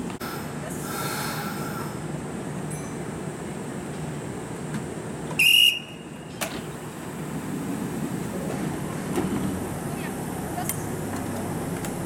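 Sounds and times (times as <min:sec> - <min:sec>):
electric train humming: 0:00.0 - 0:12.0
shrill railway whistle blast: 0:05.4 - 0:06.1.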